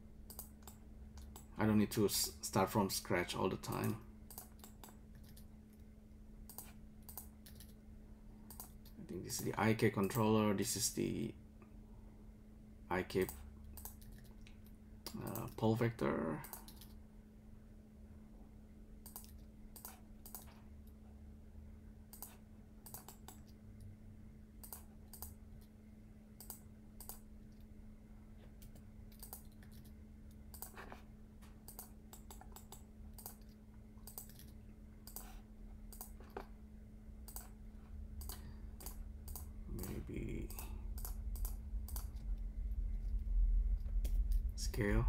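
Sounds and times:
steady low hum: 0.0s - 45.0s
keyboard and mouse clicks: 0.3s - 1.5s, 3.7s - 5.8s, 6.5s - 7.8s, 8.5s - 9.0s, 13.2s - 15.7s, 16.4s - 17.0s, 19.0s - 21.0s, 22.1s - 23.9s, 24.6s - 25.7s, 26.4s - 27.7s, 28.6s - 31.0s, 31.6s - 36.5s, 37.2s - 37.6s, 38.2s - 42.2s.

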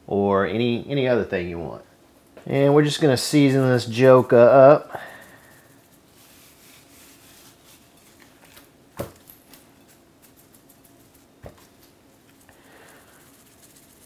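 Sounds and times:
spice granules pattering: 3.4s - 8.5s, 9.6s - 14.0s.

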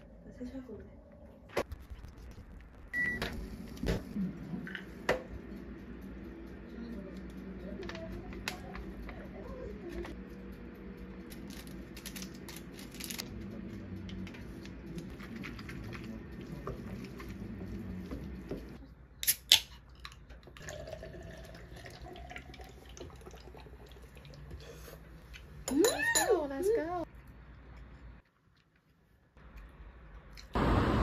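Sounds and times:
steady low hum: 0.0s - 19.1s
wet noodles squishing: 14.6s - 18.5s.

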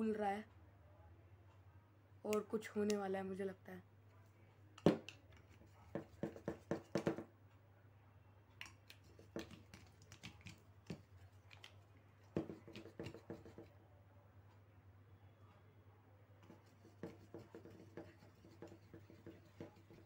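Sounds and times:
pencil clicking on can tab: 8.6s - 13.7s.

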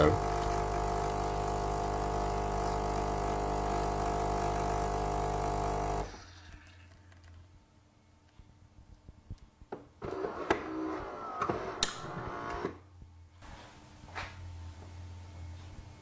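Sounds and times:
espresso machine pump humming: 0.0s - 6.2s.

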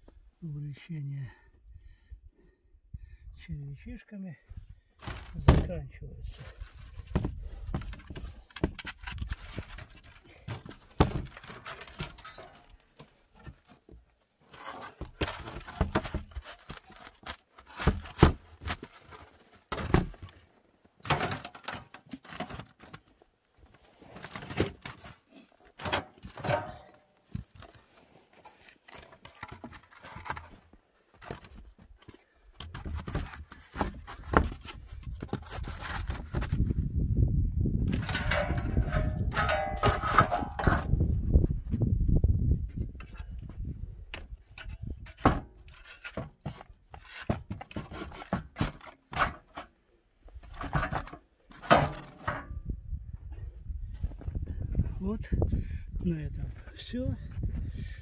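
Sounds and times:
scrapes of boards and slabs: 6.4s - 20.4s, 23.8s - 36.7s, 37.9s - 41.0s, 44.1s - 49.7s, 50.4s - 52.5s.

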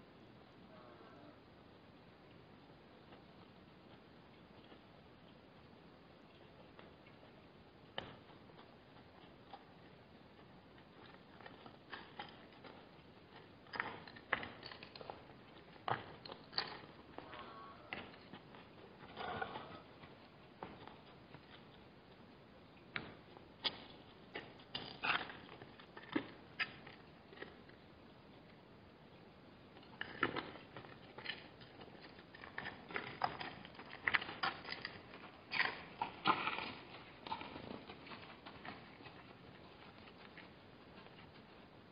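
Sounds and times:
animals drinking water: 2.2s - 41.9s
hooves on stony mud: 30.2s - 41.9s.

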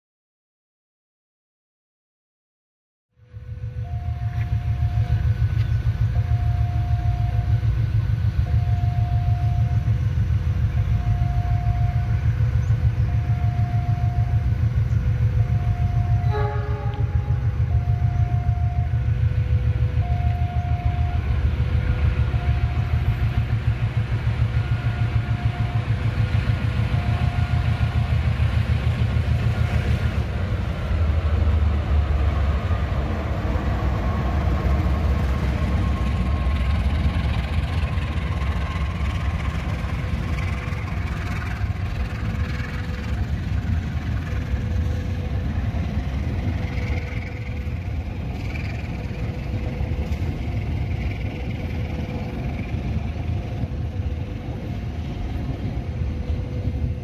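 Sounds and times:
locomotive engine rumble: 3.2s - 57.0s
two-note alternating tone: 3.4s - 31.0s
locomotive horn blast: 15.2s - 23.5s, 24.4s - 28.4s.

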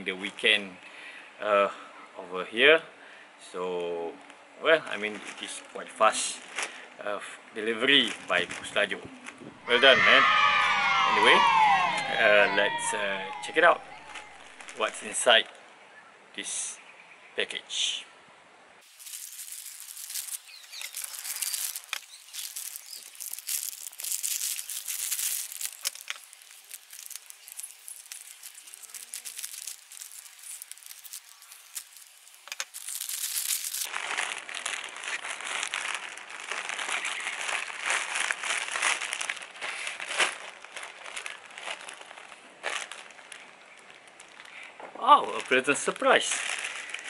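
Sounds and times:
plastic wrapping crinkling: 6.3s - 6.8s, 7.7s - 9.4s, 13.3s - 15.2s, 18.8s - 47.0s.

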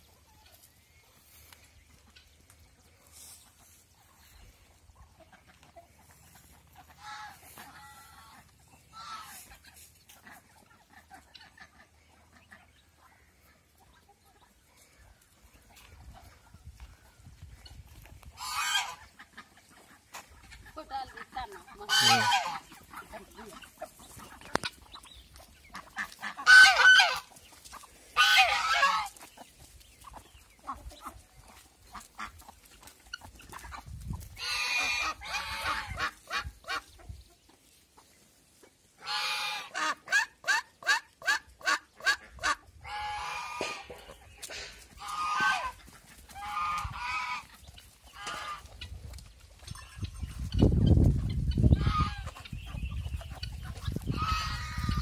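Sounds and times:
chickens clucking: 0.0s - 55.0s
geese honking: 3.0s - 14.2s, 18.3s - 29.4s, 33.1s - 36.9s, 39.0s - 49.0s, 49.8s - 55.0s.

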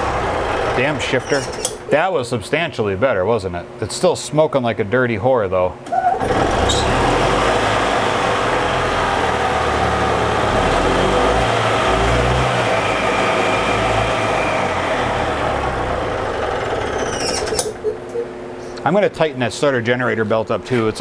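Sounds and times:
golf cart engine running: 0.0s - 1.9s, 6.2s - 18.1s.

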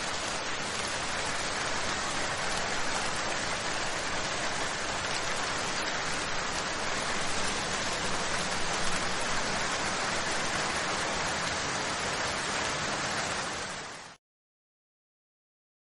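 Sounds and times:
steady static hiss: 0.0s - 12.5s.

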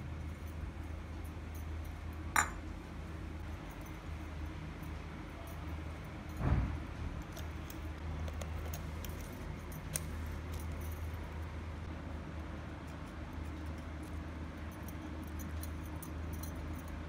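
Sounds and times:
steady low hum: 0.0s - 17.0s
metal and glass clinks: 1.4s - 2.7s, 14.7s - 17.0s.

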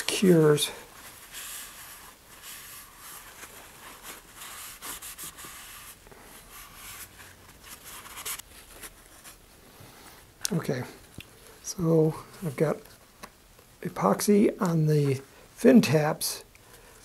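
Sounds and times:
paper towel rubbing cardboard tube: 0.1s - 8.4s.

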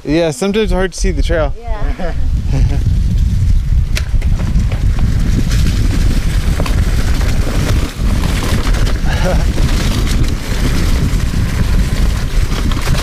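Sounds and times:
wind on microphone: 0.0s - 13.0s
bike clicks and rattles: 2.6s - 13.0s
tyres rolling on dirt: 4.2s - 13.0s.

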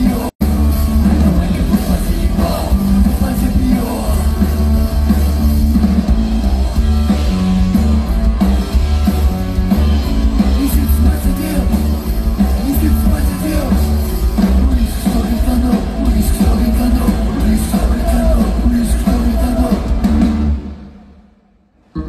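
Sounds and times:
man singing: 0.0s - 4.6s, 10.4s - 20.1s
electric bass: 0.0s - 20.8s
electric guitar: 0.0s - 20.9s.

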